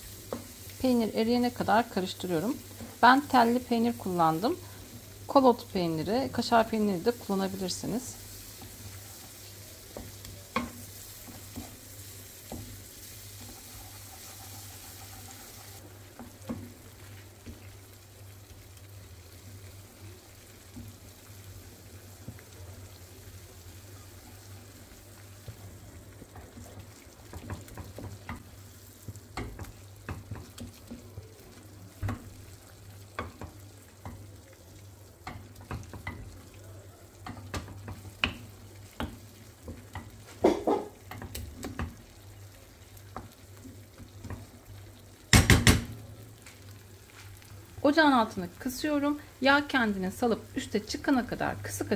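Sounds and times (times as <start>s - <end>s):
low sizzle from pan: 0.0s - 51.9s
wooden spoon scraping a pan: 7.2s - 17.6s.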